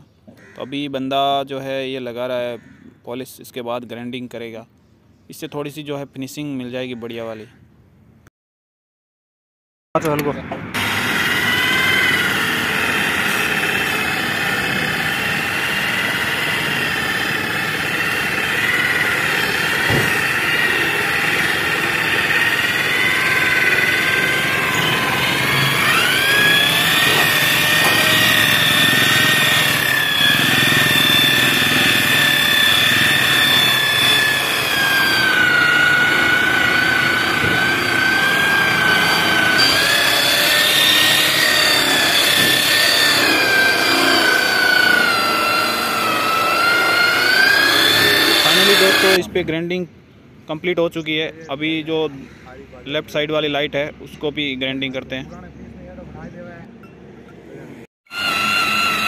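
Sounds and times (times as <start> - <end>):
angle grinder polishing whine: 10.7 - 49.3, 58.1 - 59.0.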